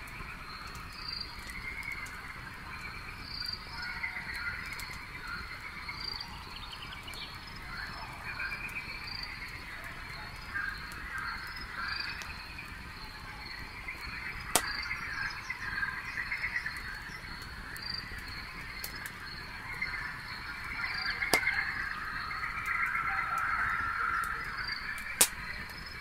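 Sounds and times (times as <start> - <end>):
campfire crackling: 0.0 - 26.0
night chorus of calling animals: 0.0 - 26.0
sharp pop of fire: 14.5 - 14.9.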